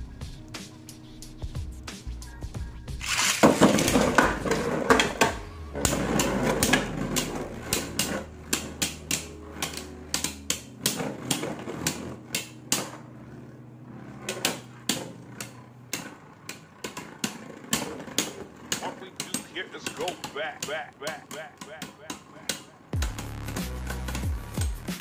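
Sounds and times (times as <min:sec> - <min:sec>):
spinning tops clacking together: 0:03.0 - 0:04.2
spinning tops whirring: 0:03.0 - 0:25.0.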